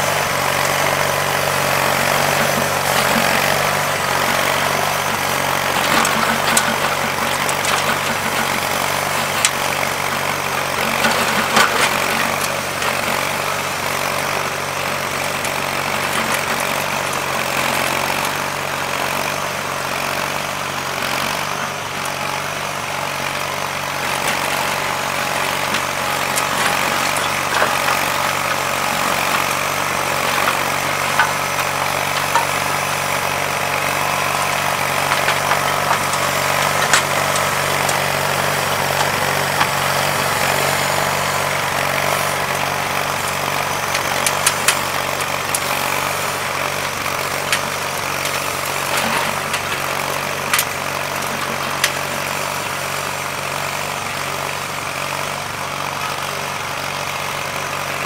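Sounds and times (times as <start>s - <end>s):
tiller tines churning sod: 0.0s - 58.0s
tractor engine running under load: 0.0s - 58.0s.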